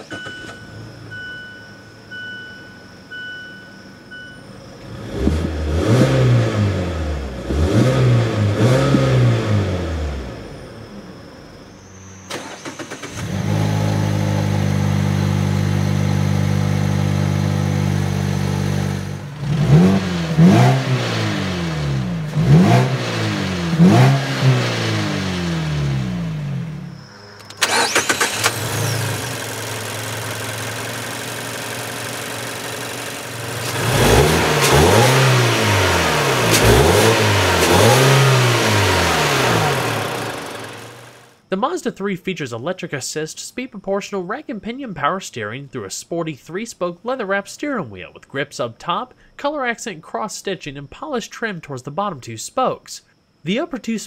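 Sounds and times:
car engine idling and revving: 0.0s - 41.5s.

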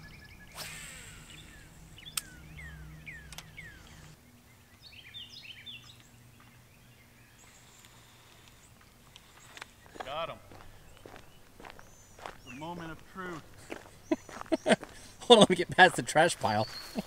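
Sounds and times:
songbirds calling: 0.0s - 17.0s
sharp click: 2.1s - 2.4s, 3.3s - 4.0s.

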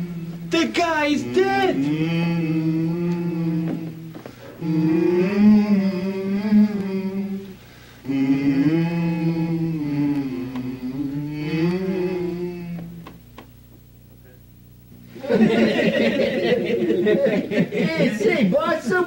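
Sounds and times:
male vocal quartet singing: 0.0s - 13.2s.

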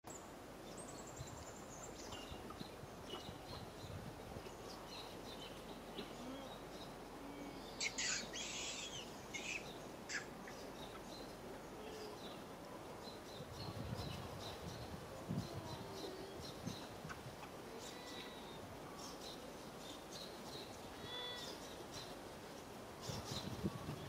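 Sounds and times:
small birds chirping: 0.1s - 24.0s
steady background hiss: 0.1s - 24.0s
high-pitched bird calls: 7.4s - 11.0s.

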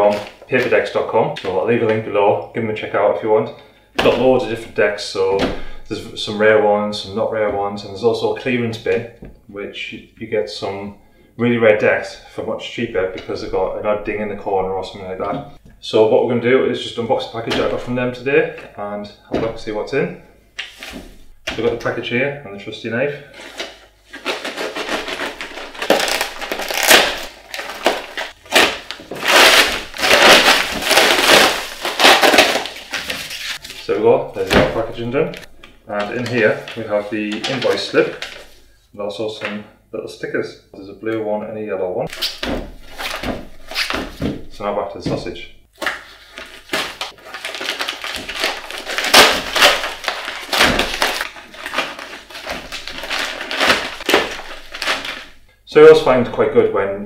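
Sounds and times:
paper crinkling and ripping: 23.4s - 38.6s, 45.7s - 55.4s.

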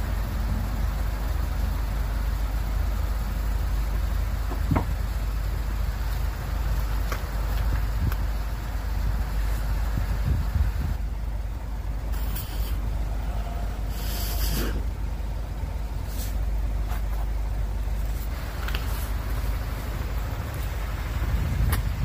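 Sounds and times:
road traffic engine rumble: 0.0s - 22.0s
short sharp hiss: 12.2s - 12.8s, 13.9s - 14.9s.

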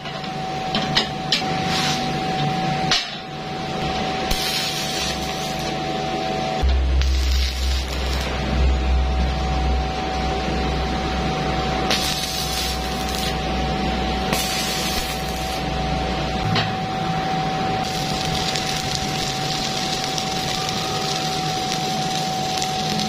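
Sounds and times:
steady tone: 3.4s - 19.5s
welding arc crackling: 3.8s - 6.0s, 6.6s - 10.5s, 11.1s - 16.4s, 17.7s - 23.0s.

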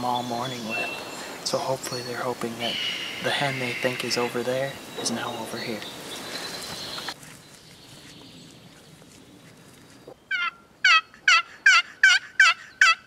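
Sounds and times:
turkey call hen yelps: 10.3s - 13.0s.

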